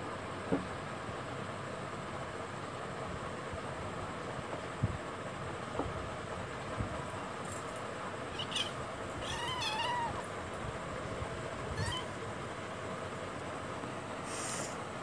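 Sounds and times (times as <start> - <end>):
steady background hiss: 0.0 - 15.0
kitten mewing: 8.3 - 10.2, 11.7 - 12.1.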